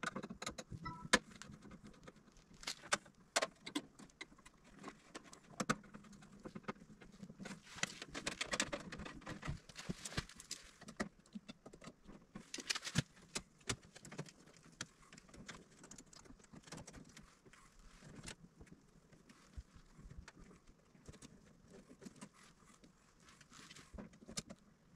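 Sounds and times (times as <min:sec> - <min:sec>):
tool clicks and taps on wires: 0:00.0 - 0:06.9
wires rustling and scraping: 0:00.0 - 0:24.9.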